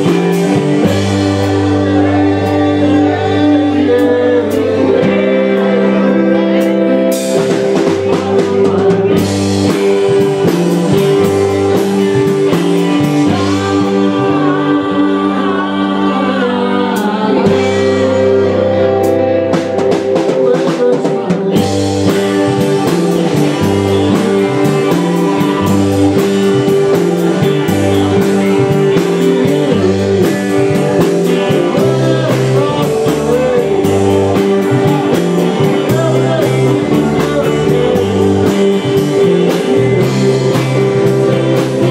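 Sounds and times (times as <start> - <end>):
man singing into microphone: 0.0 - 9.3, 9.9 - 19.1, 20.1 - 41.9
live rock band playing: 0.0 - 41.9.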